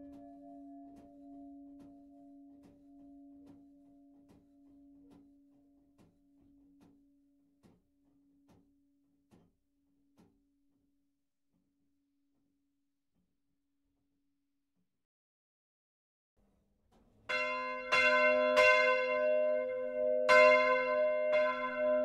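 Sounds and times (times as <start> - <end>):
church bell hum: 0.0 - 6.5, 17.3 - 22.0.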